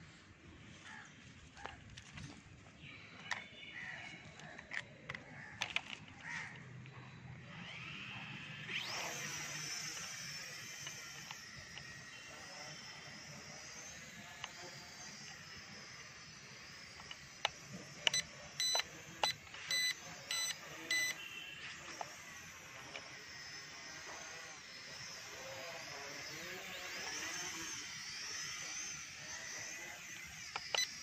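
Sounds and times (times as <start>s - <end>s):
quadcopter motors whining: 0.0s - 31.0s
short electronic beeps: 18.1s - 21.6s.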